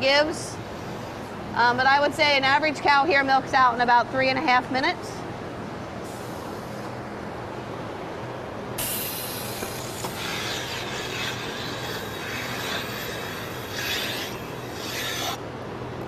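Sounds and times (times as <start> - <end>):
steady low hum: 0.0 - 16.0
milking machine hissing: 8.8 - 15.4.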